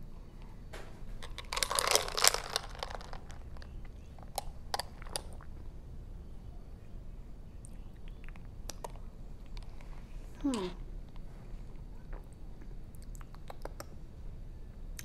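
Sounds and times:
ice rattling in a glass jar: 0:01.2 - 0:03.5.

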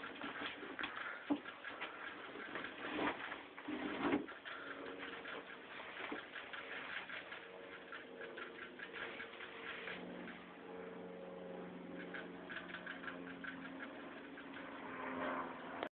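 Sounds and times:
rabbit licking clicks: 0:04.4 - 0:10.4.

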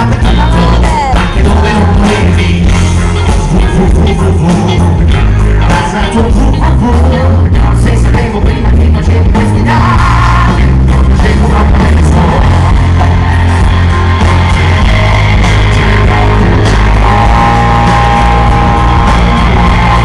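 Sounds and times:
live rock band with singer: 0:00.0 - 0:20.0.

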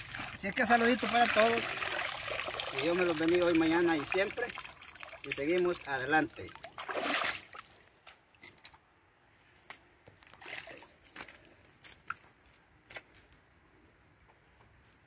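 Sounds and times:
small water splashes: 0:00.0 - 0:08.7, 0:10.4 - 0:11.2
river water sloshing and trickling: 0:00.0 - 0:08.9, 0:10.3 - 0:11.2.

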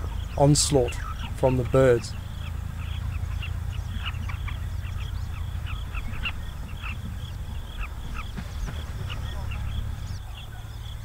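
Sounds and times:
birds chirping: 0:00.0 - 0:11.0
low rumble: 0:00.0 - 0:11.0.

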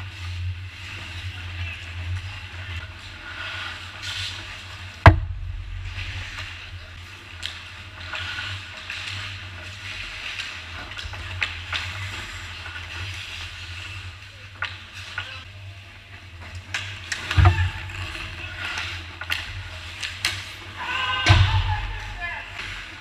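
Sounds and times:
skates scraping on ice: 0:00.0 - 0:05.0, 0:05.6 - 0:15.5, 0:16.5 - 0:23.0
sticks and puck clacking: 0:00.2 - 0:15.5, 0:16.4 - 0:23.0
loud thump: 0:05.0 - 0:06.9.

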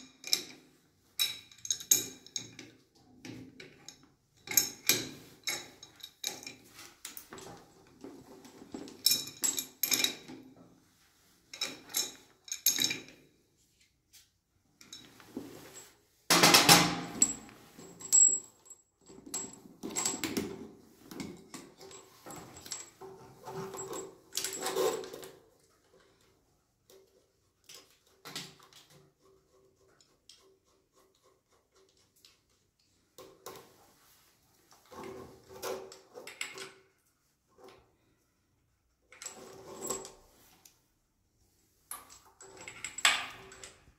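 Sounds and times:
metal tools clinking and rattling: 0:00.0 - 0:10.4, 0:11.5 - 0:13.2, 0:14.8 - 0:25.5, 0:41.9 - 0:43.9.

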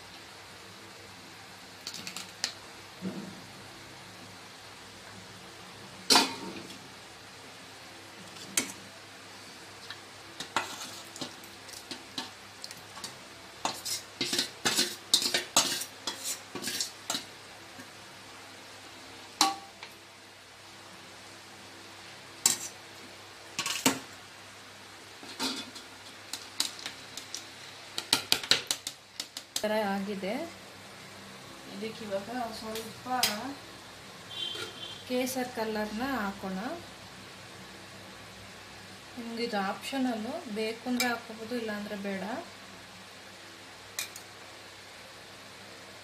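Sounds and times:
faint steady hiss: 0:00.0 - 0:46.0.

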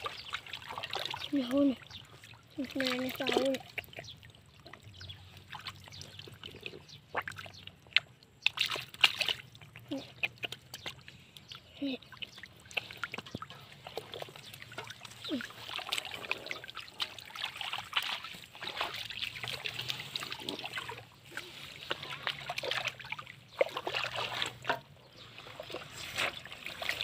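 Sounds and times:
water splashing and trickling: 0:00.0 - 0:27.0.

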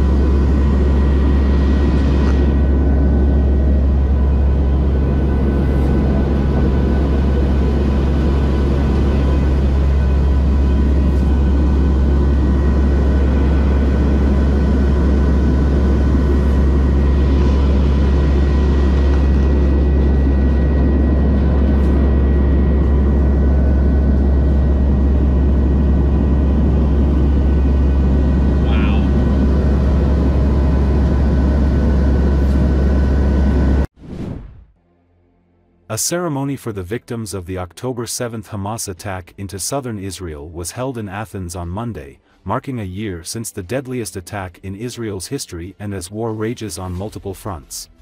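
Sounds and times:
turboprop engines low hum: 0:00.0 - 0:48.0.

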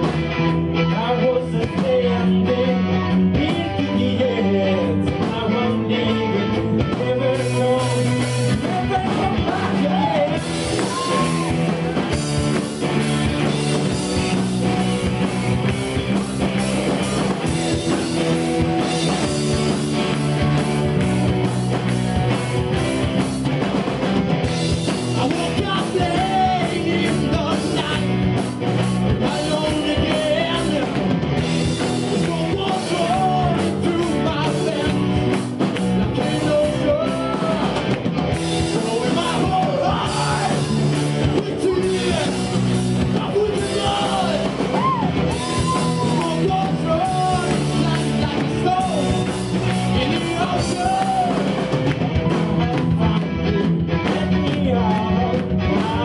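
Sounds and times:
bass guitar: 0:00.0 - 0:56.0
drum kit: 0:00.0 - 0:56.0
electric guitar: 0:00.0 - 0:56.0
man singing: 0:00.7 - 0:12.0, 0:24.9 - 0:28.4, 0:29.0 - 0:56.0.

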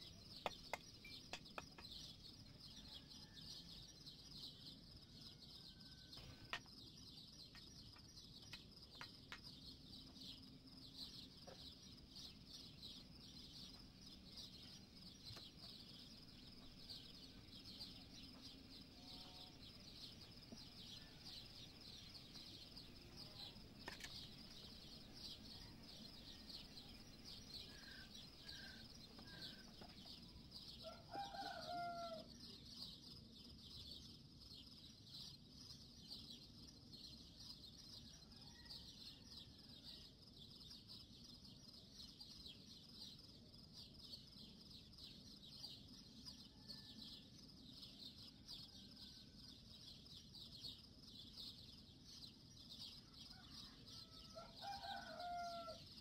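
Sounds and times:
steady high chirping: 0:00.0 - 0:02.8, 0:06.2 - 0:31.1
rooster crowing: 0:30.8 - 0:32.3, 0:53.3 - 0:55.8.

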